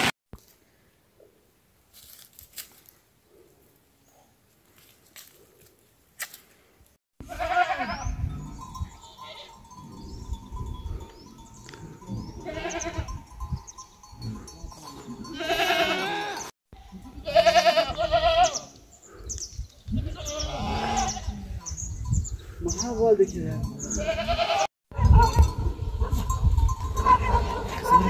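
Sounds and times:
goats bleating: 0:07.2 - 0:08.2, 0:09.0 - 0:09.7, 0:12.0 - 0:13.2, 0:14.3 - 0:18.8, 0:19.9 - 0:21.6, 0:23.8 - 0:25.3.

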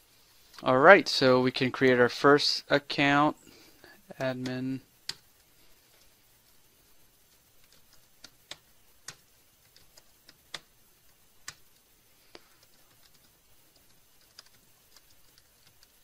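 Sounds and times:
computer keyboard keystrokes: 0:07.3 - 0:10.7, 0:11.4 - 0:11.7, 0:12.6 - 0:16.0.

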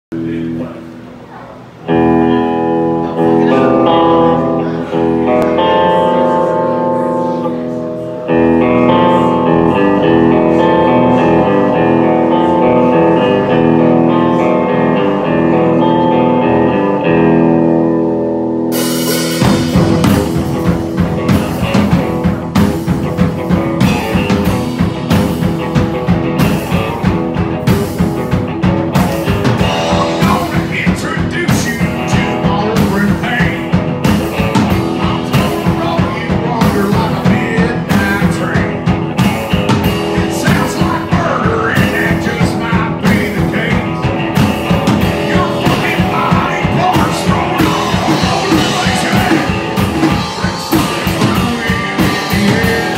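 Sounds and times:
electric guitar: 0:00.1 - 0:52.9
drum kit driving beat: 0:07.6 - 0:52.9
man singing: 0:28.9 - 0:52.9.

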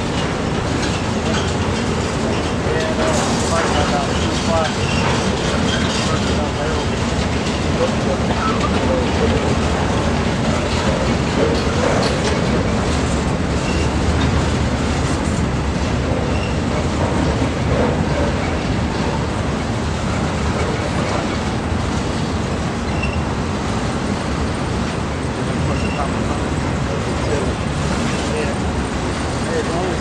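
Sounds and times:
train wheels on rails: 0:00.0 - 0:30.0
faint high squeaks: 0:22.9 - 0:23.3.

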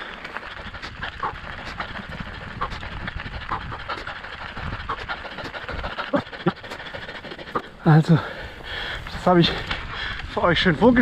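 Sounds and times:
bike tyres crunching on gravel: 0:00.0 - 0:06.2.

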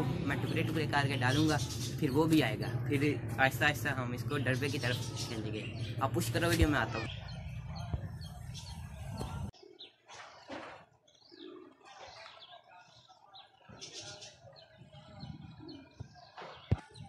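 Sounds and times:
small birds chirping: 0:00.0 - 0:17.0
pigeons cooing: 0:11.1 - 0:12.5, 0:13.8 - 0:16.6.

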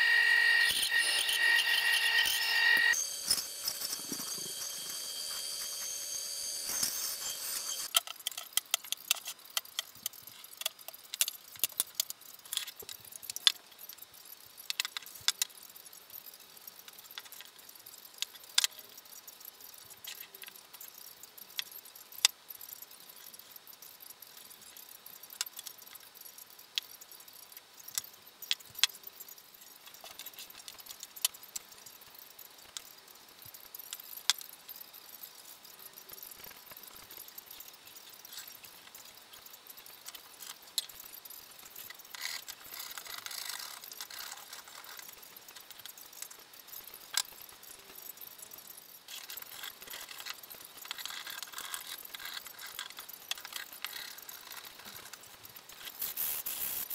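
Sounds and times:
bandsaw running: 0:00.0 - 0:07.9.

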